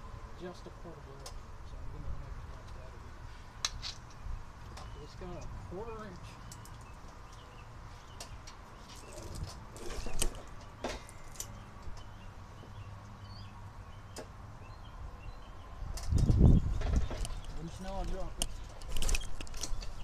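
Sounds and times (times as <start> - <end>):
handling knocks and clicks: 15.9 - 20.0.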